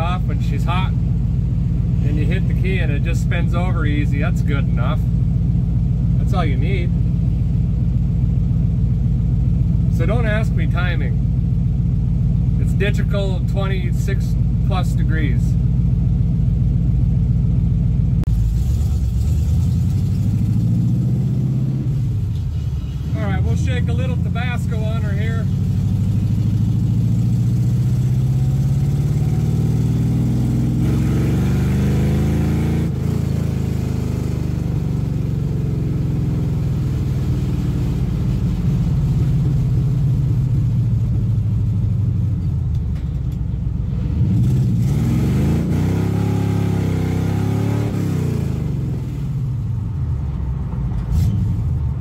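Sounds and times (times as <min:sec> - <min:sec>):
car engine revving from inside: 0:25.5 - 0:38.5, 0:44.0 - 0:49.4.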